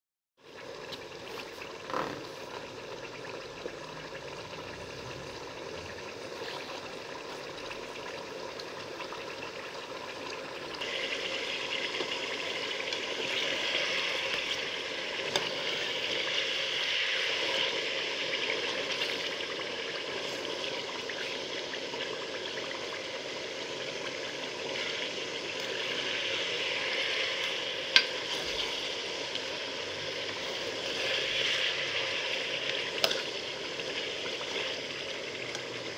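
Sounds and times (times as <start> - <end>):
chicken sizzling in hot oil: 0.4 - 35.9
steel ladle in metal pan: 32.6 - 33.4.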